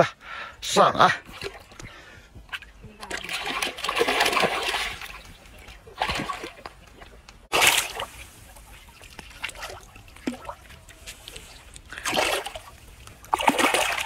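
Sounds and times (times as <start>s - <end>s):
fish splashing in water: 3.0s - 14.0s.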